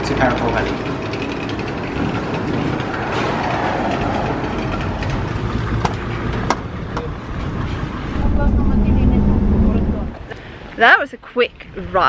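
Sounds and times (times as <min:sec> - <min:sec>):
street and traffic noise: 0:00.0 - 0:12.0.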